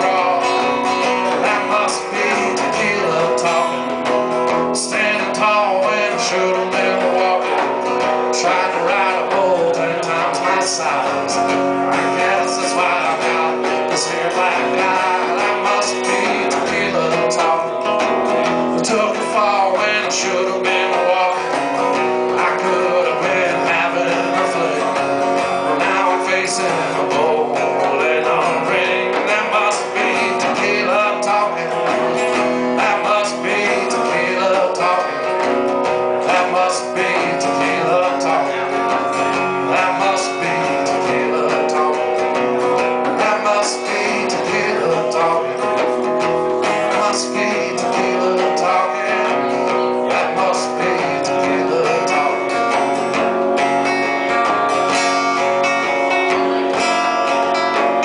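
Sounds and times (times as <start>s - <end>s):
acoustic guitar strumming: 0.0s - 58.0s.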